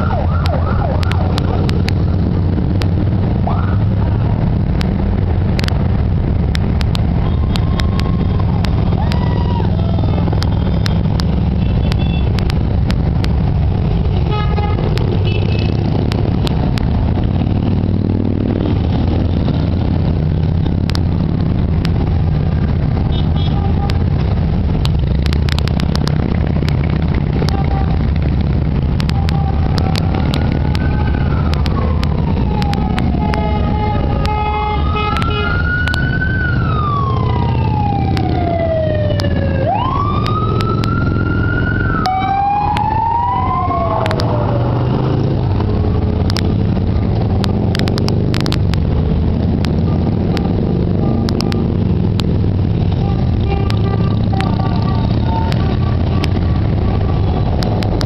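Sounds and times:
siren wailing: 0:00.0 - 0:02.3, 0:07.0 - 0:11.4, 0:26.9 - 0:46.3
motorcycles riding past: 0:14.9 - 0:23.4, 0:24.0 - 0:58.0
horn toots: 0:32.8 - 0:35.6.

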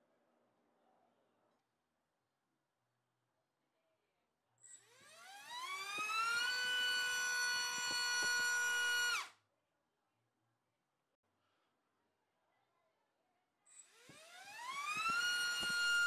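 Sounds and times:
drone motor propeller whine: 0:04.9 - 0:09.3, 0:14.0 - 0:16.0.

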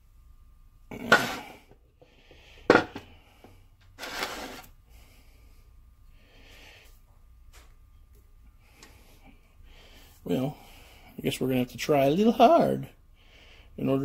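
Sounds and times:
metal scraping on wood: 0:04.0 - 0:04.7.

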